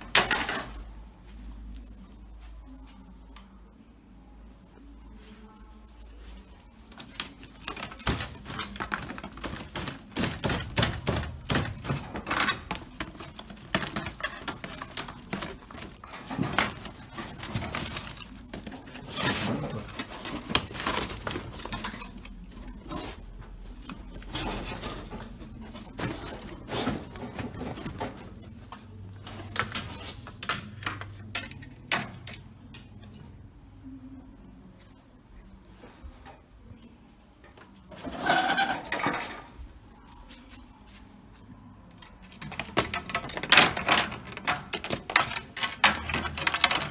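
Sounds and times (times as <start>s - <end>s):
dogs scraping and clattering: 7.0s - 28.6s, 37.9s - 39.5s.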